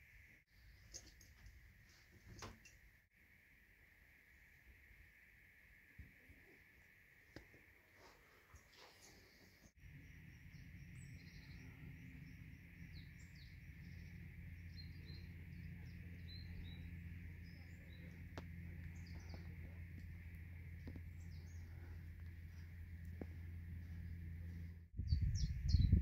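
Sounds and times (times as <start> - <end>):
low steady hum: 0.0 - 26.0
small birds chirping: 7.3 - 26.0.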